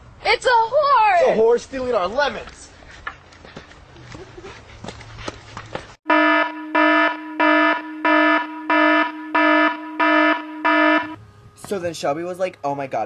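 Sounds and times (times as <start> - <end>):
alarm buzzer beeping: 6.1 - 11.2.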